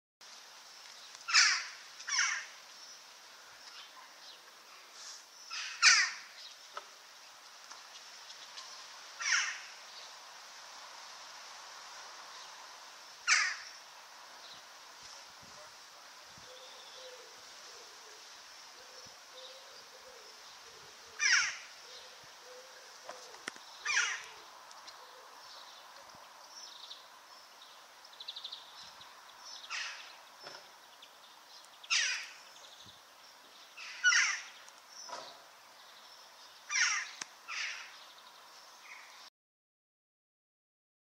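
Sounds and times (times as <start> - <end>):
outdoor background noise: 0.2 - 39.3
jackdaw calling: 1.3 - 2.6, 5.5 - 6.4, 9.2 - 9.8, 13.2 - 13.8, 21.1 - 25.4, 29.5 - 30.6, 31.7 - 32.6, 33.8 - 35.2, 36.6 - 38.0.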